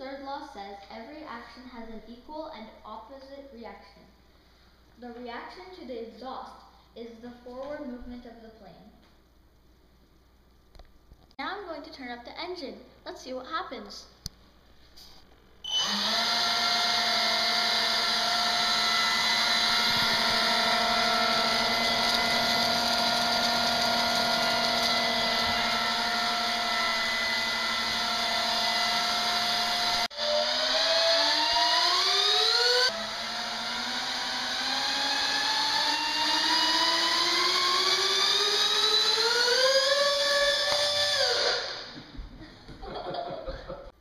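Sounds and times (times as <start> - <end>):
model jet engines whining: 15.7 - 42.0.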